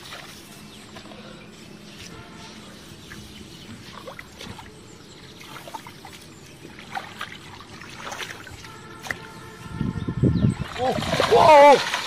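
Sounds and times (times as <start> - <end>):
muddy water trickling and sloshing: 0.0 - 1.3, 1.9 - 9.7, 10.5 - 12.0
small water splashes: 3.8 - 9.4, 10.6 - 12.0.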